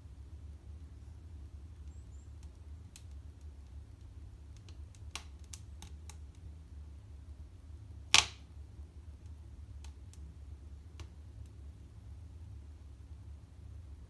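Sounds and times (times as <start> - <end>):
wood fire crackling and popping: 1.8 - 6.6, 8.0 - 11.6.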